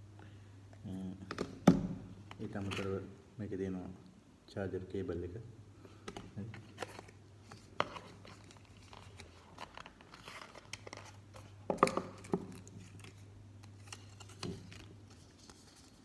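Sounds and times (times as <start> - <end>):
paper packaging rustling: 6.6 - 16.0.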